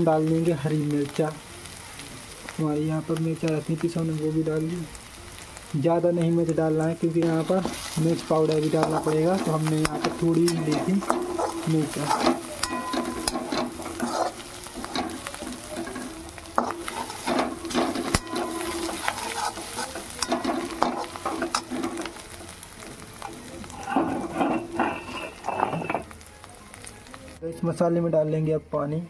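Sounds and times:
food sizzling in oil: 0.0 - 27.8
metal spoon scraping a pan: 7.2 - 22.6, 23.2 - 26.1.

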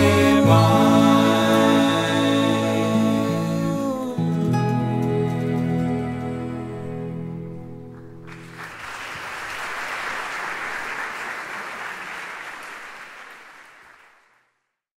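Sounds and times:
held music chord: 0.0 - 7.9
audience applause: 8.2 - 14.5.

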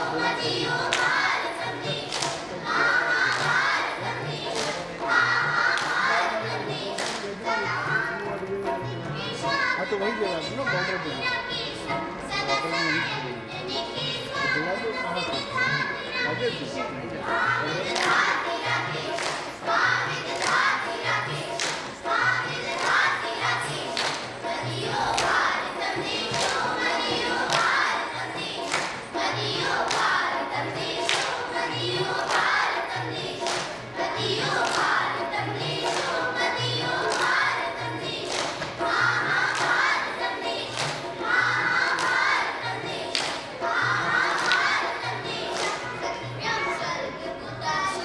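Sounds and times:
children singing in chorus: 0.0 - 7.2, 17.2 - 48.0.

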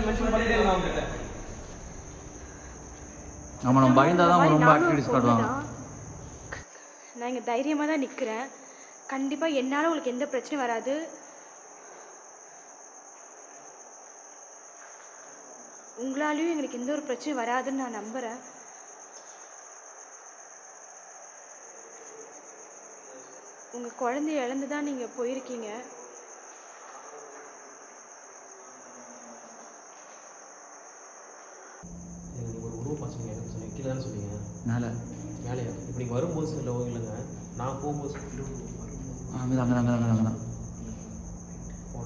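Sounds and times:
low hum: 0.0 - 6.6, 31.9 - 42.0
crickets chirring: 0.0 - 42.0.

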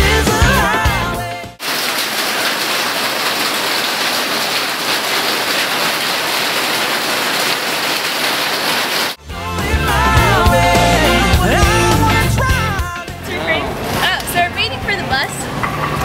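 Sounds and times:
heavy rain falling: 1.6 - 9.2.

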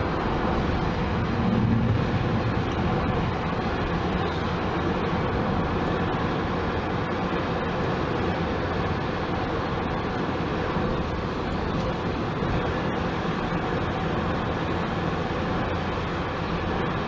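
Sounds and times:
car tyre and engine noise: 0.0 - 17.0.

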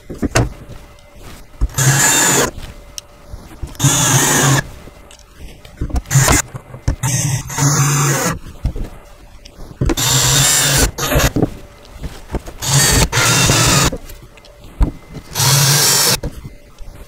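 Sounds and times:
cordless drill driving screws: 1.7 - 2.5, 3.8 - 4.6, 7.0 - 8.4, 10.0 - 11.3, 12.6 - 13.9, 15.3 - 16.2.

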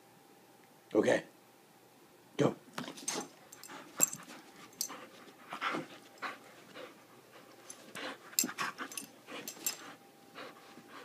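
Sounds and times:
dog panting: 3.1 - 11.0.

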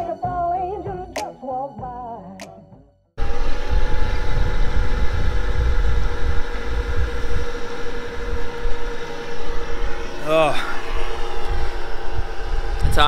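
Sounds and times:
steady machine hum: 3.2 - 13.0
wind buffeting microphone: 3.2 - 13.0.

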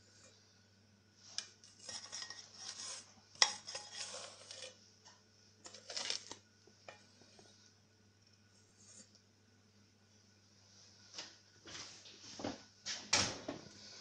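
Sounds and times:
faint steady hum: 0.0 - 14.0
plastic scraper scraping metal bowl: 1.8 - 4.8.

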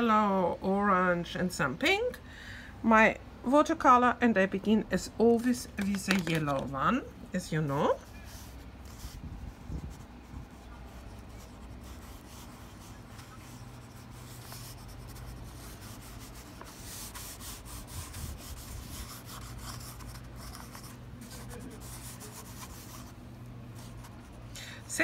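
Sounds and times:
crayon scratching on paper: 8.3 - 24.5.

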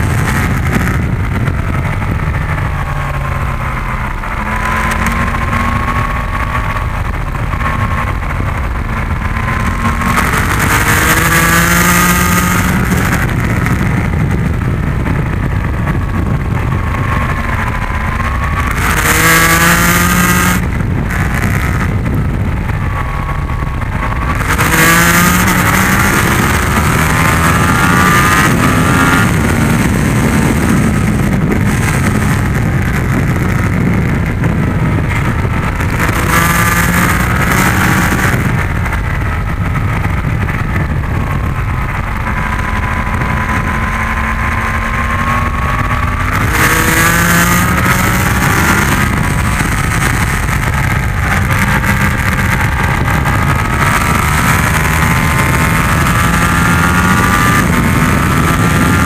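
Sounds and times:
motorcycle engine accelerating: 0.0 - 59.0
wind noise on microphone: 0.0 - 59.0.

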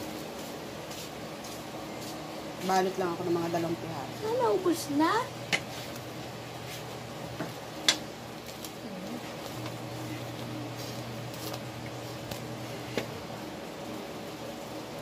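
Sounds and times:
steady low hum: 0.0 - 15.0
thin wrappers being peeled apart: 11.2 - 12.5.

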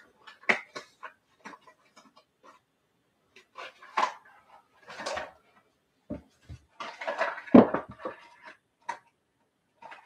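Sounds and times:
hard objects clattering: 3.4 - 9.2.

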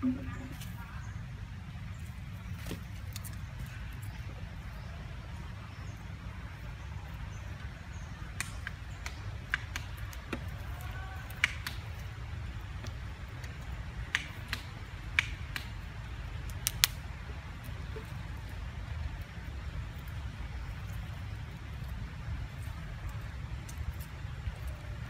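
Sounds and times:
sharp clicks and snaps: 8.4 - 10.6, 11.2 - 12.0, 12.8 - 15.8, 16.5 - 17.0.

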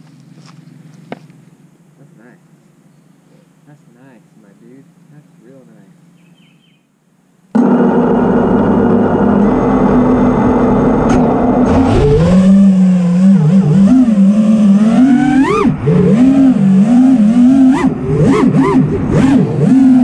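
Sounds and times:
quadcopter motors whining: 7.6 - 20.0.

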